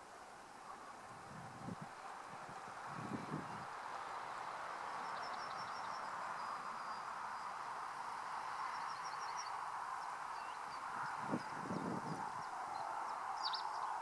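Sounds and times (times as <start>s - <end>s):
outdoor background hiss: 0.0s - 14.0s
small songbird singing: 4.9s - 7.6s, 8.6s - 14.0s.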